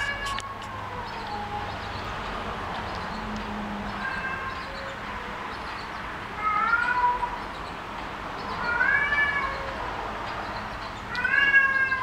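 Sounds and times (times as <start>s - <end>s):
kitten meowing: 3.9s - 5.3s, 6.4s - 7.4s, 8.6s - 9.8s, 11.1s - 12.0s.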